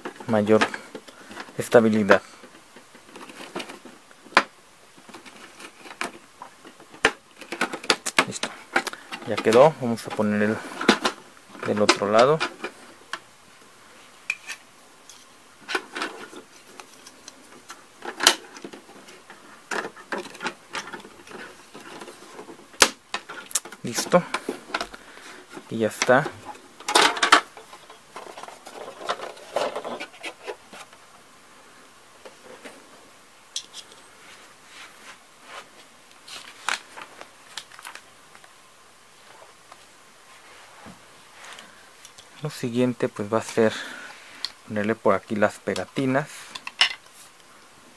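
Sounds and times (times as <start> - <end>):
small objects clicking and rustling: 14.3 - 30.8.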